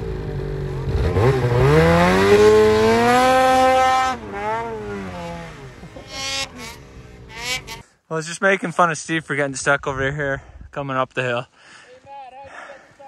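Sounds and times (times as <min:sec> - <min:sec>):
snowmobile engine revving: 0:00.0 - 0:07.8.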